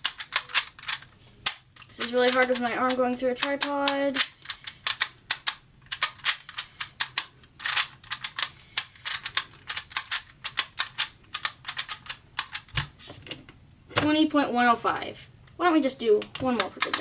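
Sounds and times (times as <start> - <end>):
puzzle dials clicking: 0.0 - 12.7.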